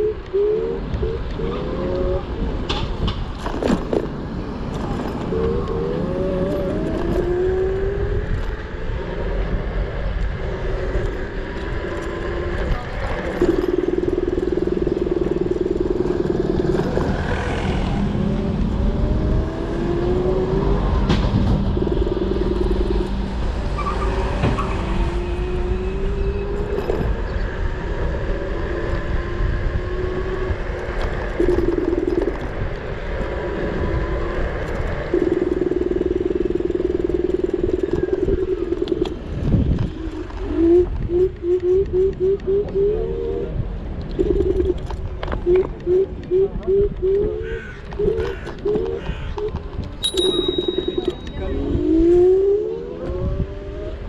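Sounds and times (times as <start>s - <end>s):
wind and tyres on road: 0.0s - 54.0s
electric scooter motor whining: 4.7s - 23.7s.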